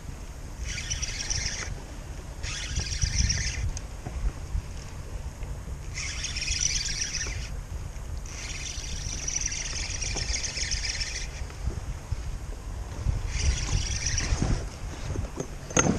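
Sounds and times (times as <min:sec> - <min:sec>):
fishing reel buzzing: 0:00.6 - 0:03.8, 0:05.9 - 0:07.6, 0:08.2 - 0:11.6, 0:13.0 - 0:14.7.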